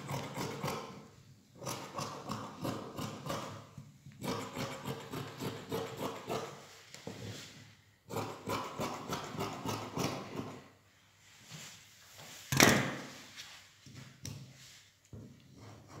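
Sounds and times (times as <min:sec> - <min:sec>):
scissors snipping fabric: 0:04.2 - 0:06.5.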